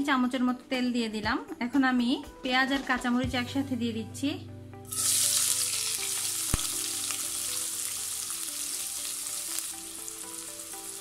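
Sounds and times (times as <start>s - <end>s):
vegetables sizzling in hot oil: 4.9s - 11.0s.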